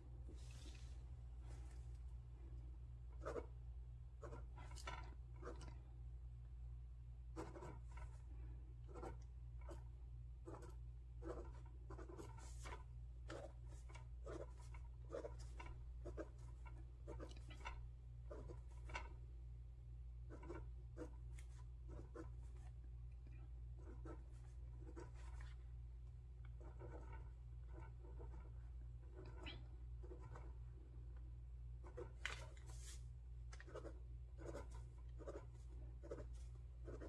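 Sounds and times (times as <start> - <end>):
pen scratching on paper: 3.2 - 3.6, 4.2 - 5.8, 7.4 - 8.2, 8.9 - 19.2, 20.3 - 22.7, 23.8 - 25.6, 26.5 - 30.6, 31.8 - 32.9, 33.5 - 37.0.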